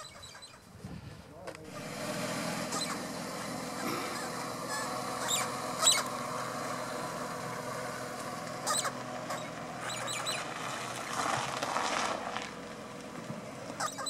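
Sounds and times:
bird chirps: 0.0 - 0.7, 3.8 - 6.2, 8.6 - 10.5, 13.8 - 14.0
car engine idling: 1.5 - 14.0.

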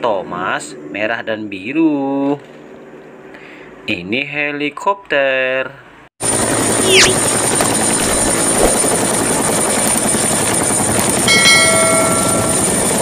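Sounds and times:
helicopter hovering: 6.2 - 13.0.

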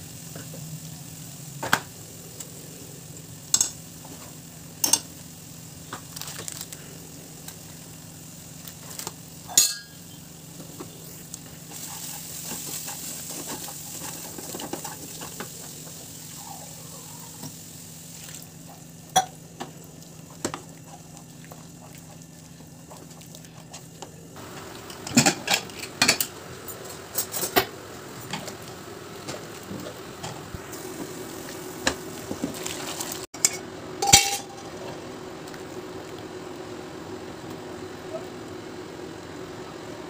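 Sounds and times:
food sizzling: 0.0 - 40.0
low steady hum: 0.0 - 40.0
pots and pans clattering: 9.5 - 10.1, 24.9 - 26.3, 31.9 - 34.8.

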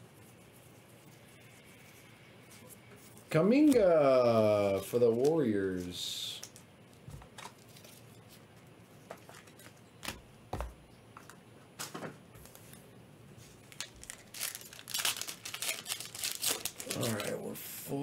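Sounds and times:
cards being handled: 3.1 - 10.2
foil wrapper tearing: 13.7 - 17.4.

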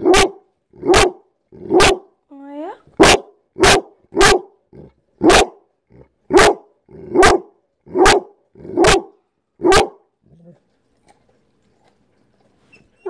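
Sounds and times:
dog barking: 0.0 - 2.1, 3.0 - 4.6, 5.2 - 5.7, 6.3 - 10.1.

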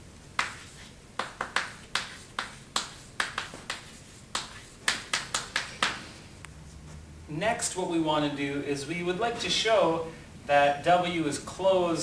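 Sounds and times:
chalk tapping on a blackboard: 0.4 - 6.1.

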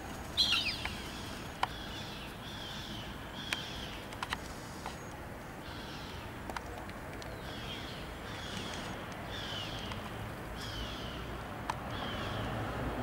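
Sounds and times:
gulls calling: 0.2 - 4.1.

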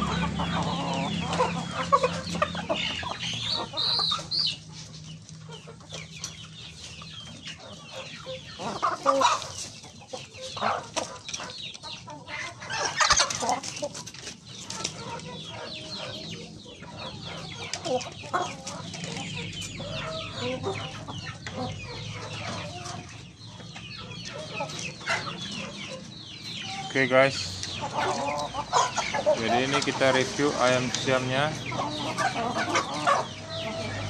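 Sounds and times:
chickens clucking: 0.0 - 34.0.

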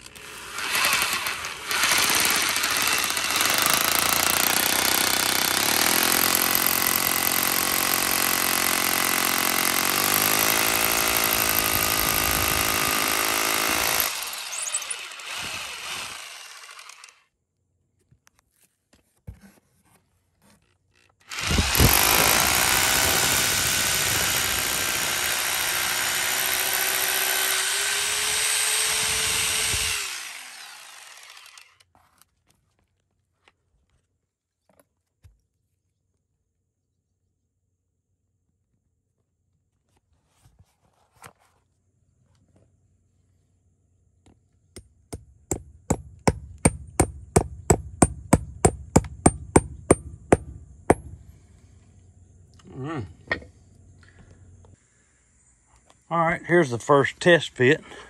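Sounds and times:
hammer drill boring into concrete: 0.0 - 17.3, 21.2 - 31.9.

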